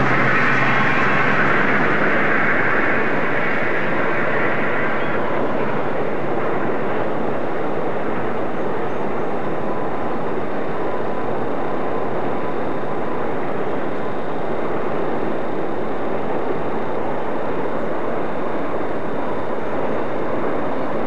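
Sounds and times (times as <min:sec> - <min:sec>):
outdoor rushing noise: 0:00.0 - 0:08.4.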